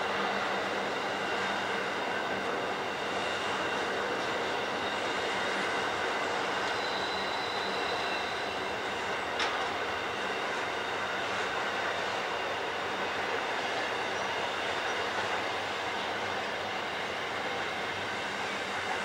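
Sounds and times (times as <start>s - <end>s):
train wheels rumbling on rail: 0.0s - 19.0s
faint wheel squeal: 3.1s - 9.2s.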